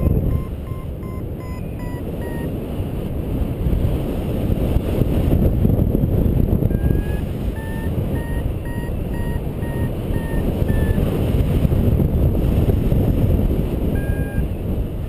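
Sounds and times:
variometer beeping: 0:00.0 - 0:02.5, 0:06.6 - 0:11.3, 0:13.9 - 0:14.6
wind rushing over microphone: 0:00.0 - 0:15.0.

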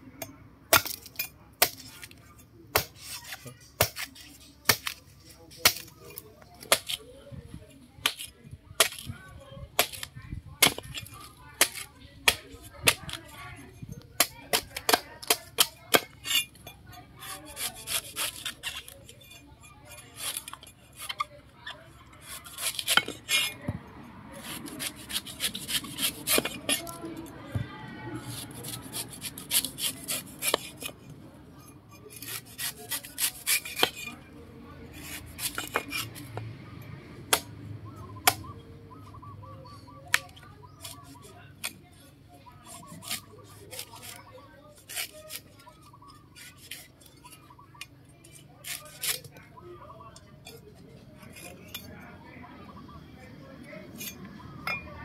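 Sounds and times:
knife chopping coconut husk: 0:00.7 - 0:07.0, 0:08.0 - 0:09.1, 0:09.8 - 0:13.4, 0:14.2 - 0:16.5, 0:17.2 - 0:21.3, 0:22.2 - 0:27.6, 0:28.2 - 0:31.0, 0:32.2 - 0:34.2, 0:34.9 - 0:36.5, 0:37.2 - 0:39.1, 0:40.0 - 0:41.8, 0:42.6 - 0:45.8, 0:46.4 - 0:49.5.

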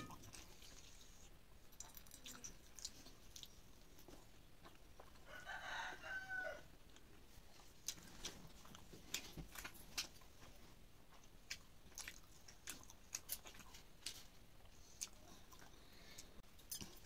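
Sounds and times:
faint rooster crowing: 0:05.2 - 0:06.8.

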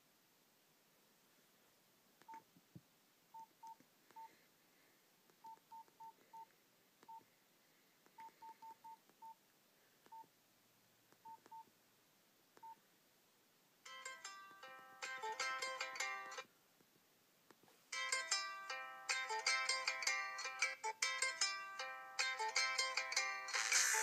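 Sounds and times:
plucked-string ringtone: 0:13.9 - 0:16.4, 0:18.0 - 0:23.8.

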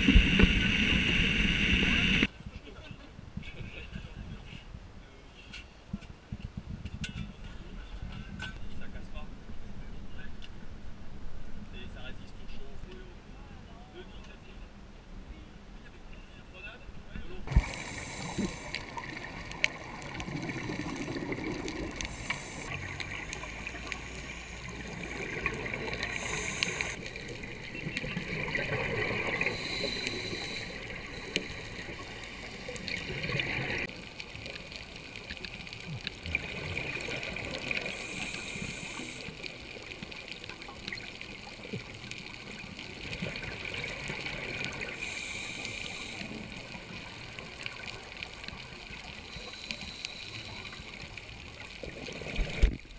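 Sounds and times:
scuba exhale bubbling: 0:00.0 - 0:02.3, 0:17.5 - 0:34.0, 0:35.9 - 0:52.8
underwater water wash: 0:00.0 - 0:02.3, 0:17.4 - 0:52.9.

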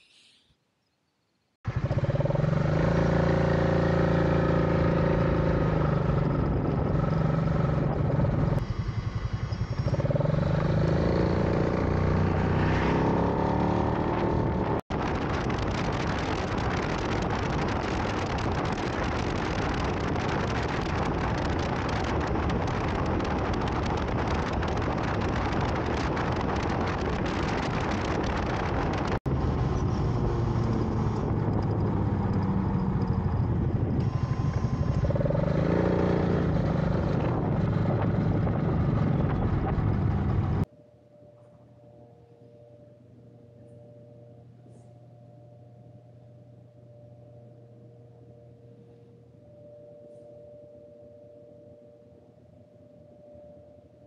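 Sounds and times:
motorcycle engine running: 0:01.6 - 0:40.7
wind rush on microphone: 0:01.8 - 0:40.7.

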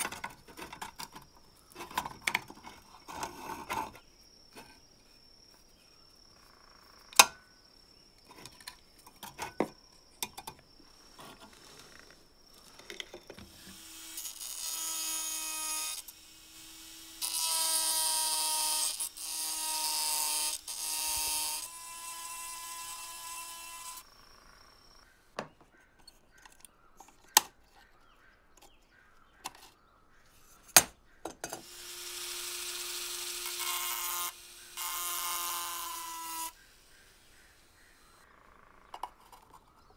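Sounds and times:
rotary tool grinding metal: 0:00.0 - 0:04.0, 0:11.2 - 0:24.2, 0:31.5 - 0:38.2.

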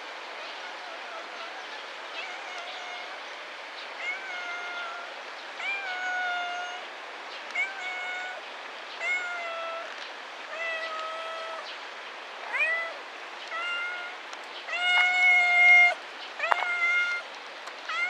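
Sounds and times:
cat meowing: 0:02.2 - 0:03.2, 0:04.0 - 0:06.8, 0:07.6 - 0:08.4, 0:09.0 - 0:09.9, 0:10.5 - 0:11.6, 0:12.5 - 0:17.2.

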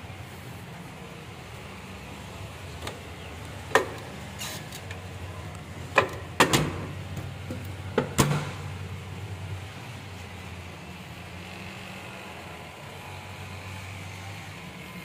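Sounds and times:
window sash clicks and knocks: 0:05.9 - 0:07.3, 0:08.0 - 0:08.7.

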